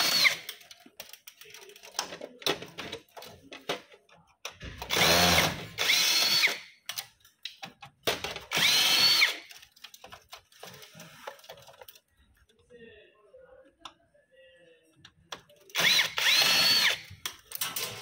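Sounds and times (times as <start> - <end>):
cordless drill motor whine: 4.9 - 6.6, 8.5 - 9.4, 15.8 - 17.1.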